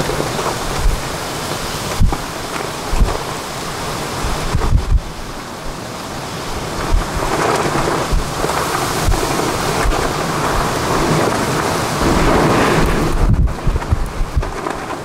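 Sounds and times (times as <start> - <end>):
heavy rain rushing: 0.0 - 15.0
low rumbling thumps: 12.0 - 14.7.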